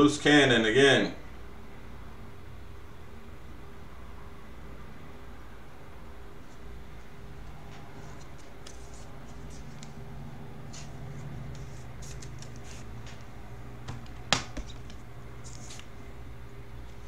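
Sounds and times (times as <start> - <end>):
steady low hum: 0.0 - 17.0
trading cards rustling: 7.5 - 13.3, 14.0 - 16.0.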